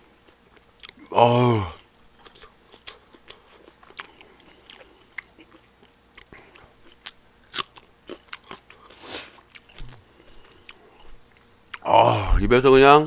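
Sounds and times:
person chewing food: 0.0s - 1.1s, 1.7s - 11.9s.

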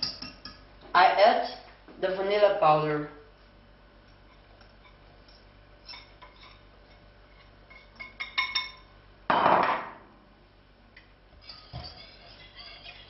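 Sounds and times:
whisk clinking against bowl: 0.0s - 0.6s
bowl clattering on counter: 8.0s - 10.0s.

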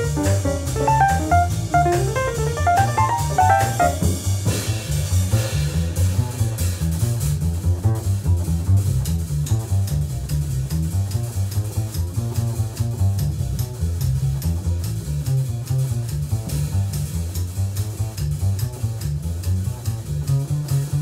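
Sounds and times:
melodic line: 0.0s - 4.2s
light piano chords: 0.0s - 4.6s
plucked double bass: 0.0s - 21.0s.

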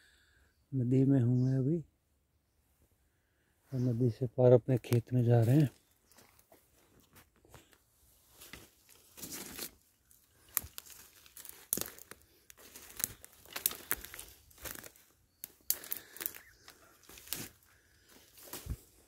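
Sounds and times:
footsteps on dry leaves: 5.4s - 7.3s, 8.0s - 19.0s.

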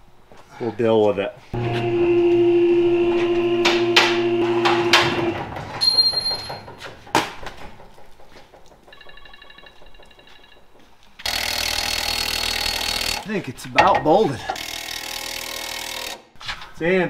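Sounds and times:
motor hum: 1.6s - 7.1s
metallic knocks: 3.6s - 11.0s, 13.8s - 14.2s
impact wrench: 11.2s - 13.2s, 14.5s - 16.2s.

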